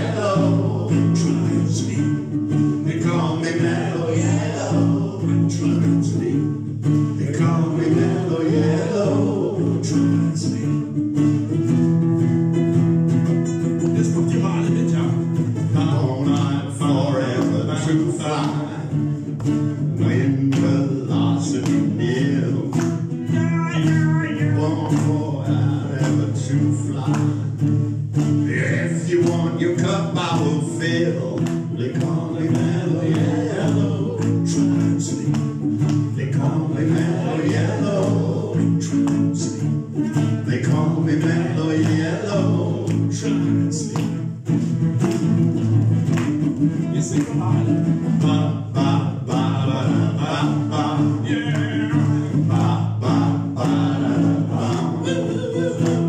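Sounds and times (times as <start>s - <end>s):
men singing: 0.0s - 11.4s, 13.8s - 44.8s, 46.3s - 56.0s
acoustic guitar strumming: 0.0s - 56.0s.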